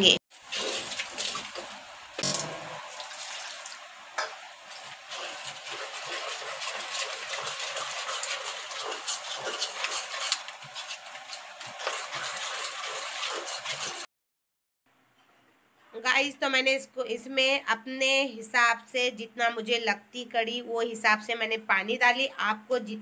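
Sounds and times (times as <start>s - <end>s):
batter stirred wet swishing: 0.3s - 14.1s
spoon scraping metal pot: 4.7s - 14.1s.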